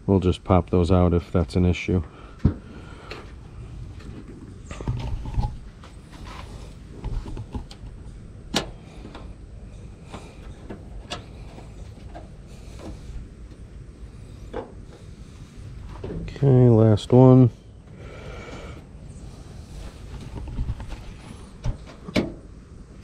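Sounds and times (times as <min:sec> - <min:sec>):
rubber seal rustling and scraping: 0:03.9 - 0:08.0, 0:19.6 - 0:22.4.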